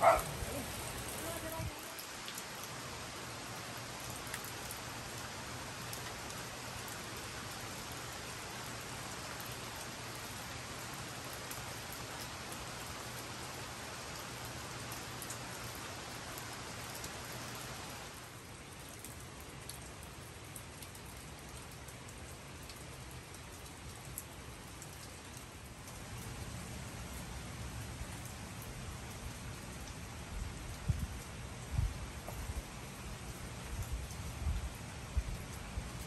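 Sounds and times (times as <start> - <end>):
steady rain: 0.0 - 36.0
raindrops ticking: 4.0 - 7.0, 18.6 - 36.0.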